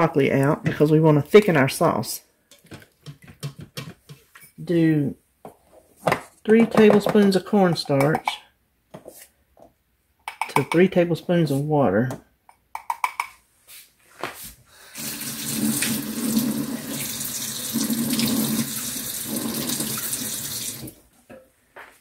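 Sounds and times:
faucet running water: 14.8 - 21.0.

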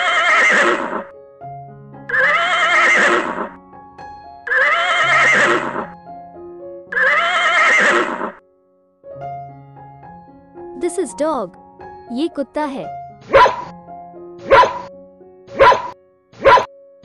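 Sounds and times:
horse whinnying: 0.0 - 1.1, 2.1 - 3.6, 4.5 - 5.9, 6.9 - 8.4
soft background music: 0.0 - 17.0.

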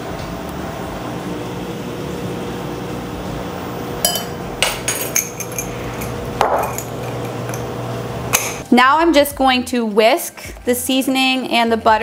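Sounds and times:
steady low hum: 0.0 - 8.7
metal spoon clinking on glass: 4.0 - 7.7.

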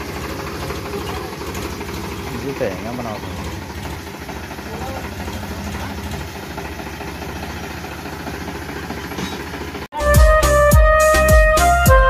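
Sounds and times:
tractor diesel engine running: 0.0 - 11.8.

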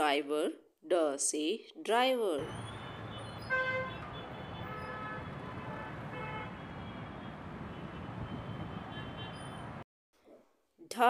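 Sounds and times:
traffic engines rumbling: 2.4 - 9.8
vehicle horns honking: 2.5 - 9.8.

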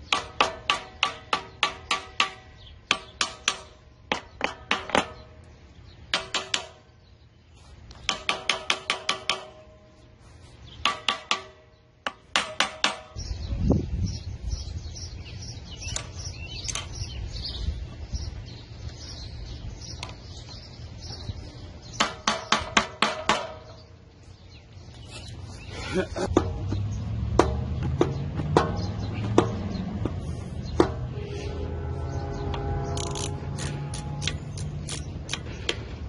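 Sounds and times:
hammer ringing on metal: 8.1 - 9.9
steady low rumble: 24.0 - 36.0.

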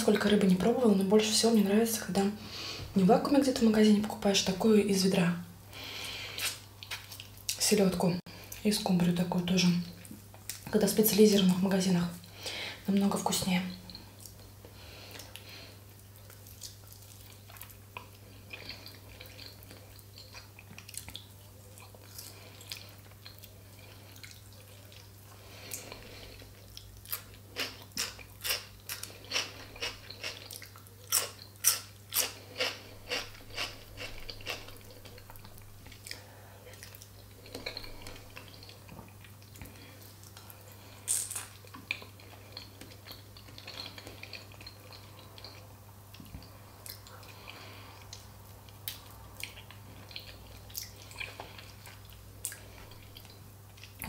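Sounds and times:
person chewing food: 5.9 - 7.6, 13.8 - 54.0
wet mouth clicks and smacks: 6.4 - 7.6
loud crunchy chews: 16.2 - 54.0.

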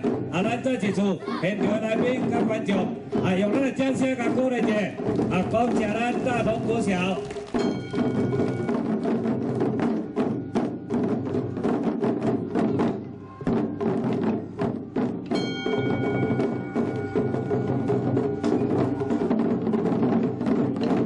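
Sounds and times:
drum ensemble playing: 0.0 - 21.0
ringing metallic tone: 15.3 - 19.4.

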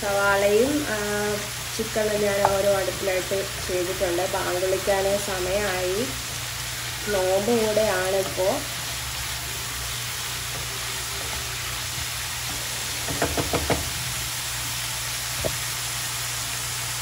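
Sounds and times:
onions sizzling in a pan: 0.0 - 17.0
utensil knocking against pan: 13.0 - 14.0.

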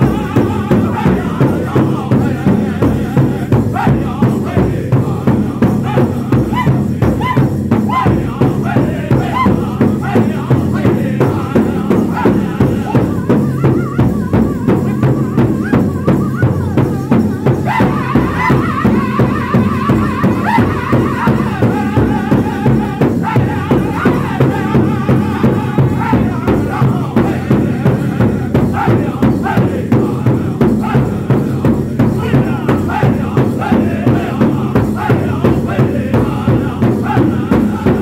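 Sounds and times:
group singing together: 0.0 - 38.0
large hide drum beating: 0.0 - 38.0.

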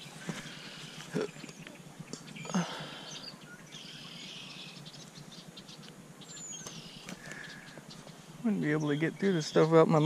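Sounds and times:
brush rustling: 0.0 - 2.8.

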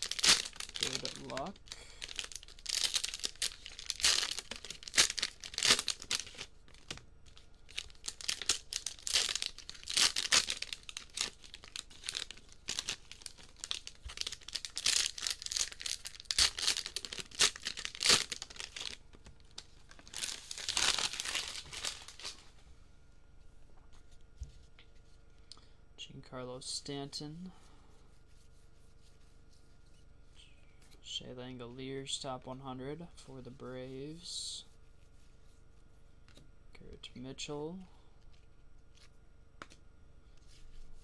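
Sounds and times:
cellophane wrappers crinkling and tearing: 0.0 - 22.5.

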